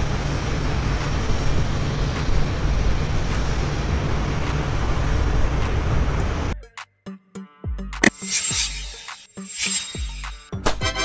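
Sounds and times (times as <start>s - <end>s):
jet engines with deep rumble: 0.0s - 6.6s.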